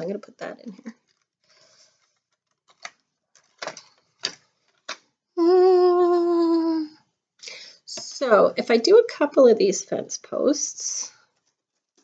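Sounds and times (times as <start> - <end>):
clicks of plastic pieces: 2.0 - 5.1
woman humming: 5.4 - 7.0.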